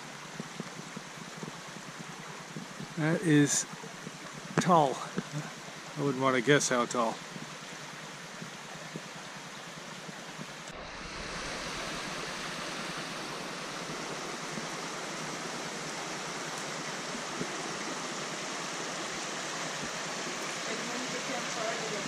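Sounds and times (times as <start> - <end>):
waterfall rushing: 2.6 - 7.2, 10.6 - 22.0
low rumble: 10.7 - 15.3.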